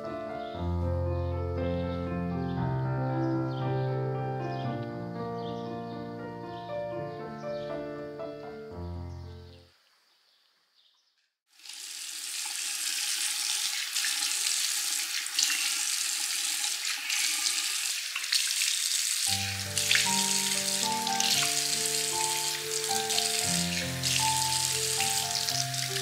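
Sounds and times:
background music with held notes: 0:00.0 - 0:09.6, 0:19.3 - 0:26.0
running water hissing: 0:11.5 - 0:26.0.

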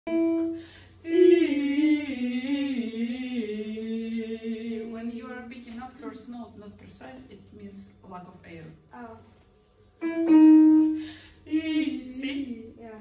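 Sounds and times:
woman singing unaccompanied: 0:01.0 - 0:06.2, 0:11.4 - 0:13.0.

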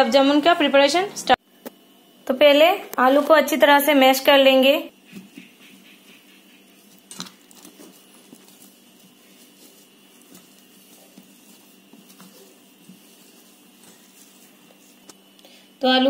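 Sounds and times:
potatoes squishing: 0:04.9 - 0:15.6.

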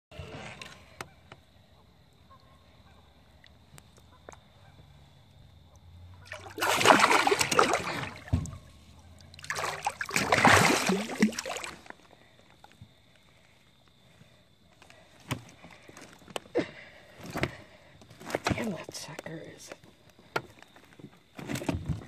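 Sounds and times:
fish thrashing and splashing water: 0:06.2 - 0:12.1.

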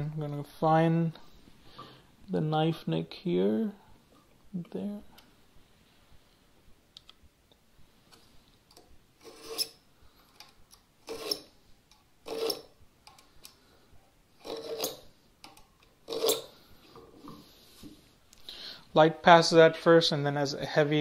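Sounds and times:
knife scraping along wood: 0:09.2 - 0:09.8, 0:11.1 - 0:11.5, 0:12.3 - 0:12.7, 0:14.4 - 0:15.0, 0:16.1 - 0:16.5.

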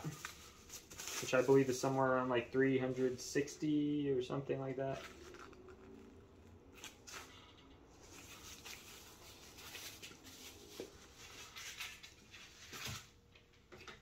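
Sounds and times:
bubble wrap rustling: 0:00.0 - 0:02.1, 0:04.9 - 0:13.2.

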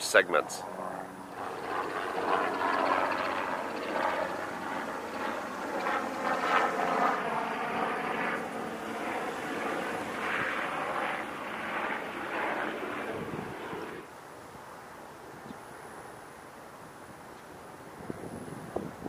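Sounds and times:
engine drone: 0:00.0 - 0:14.1.

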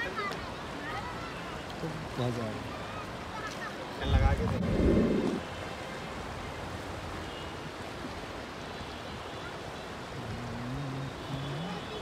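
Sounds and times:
river water rushing: 0:00.0 - 0:12.0
faint voice: 0:10.2 - 0:12.0.

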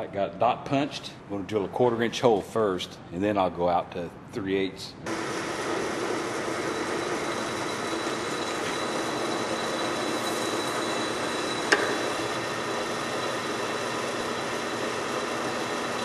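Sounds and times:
drill press whining: 0:05.1 - 0:16.0.

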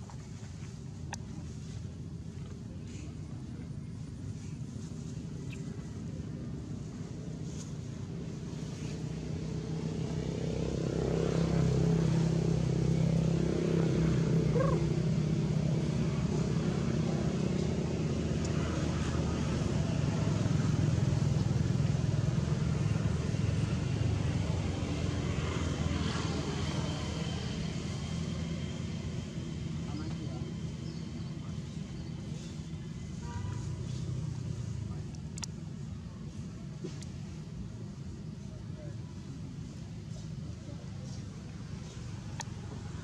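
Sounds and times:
vehicle engine passing by: 0:08.3 - 0:37.3.

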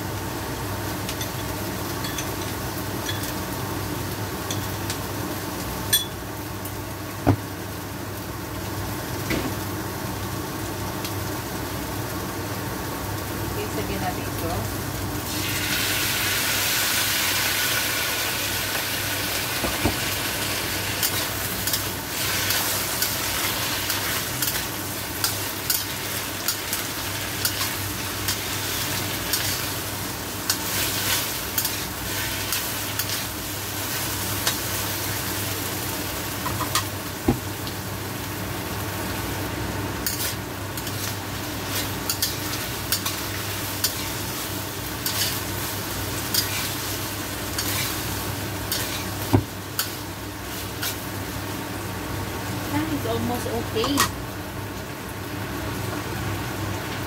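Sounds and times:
food sizzling in a wok: 0:00.0 - 0:57.0
metal clinks on wok: 0:05.9 - 0:06.2.

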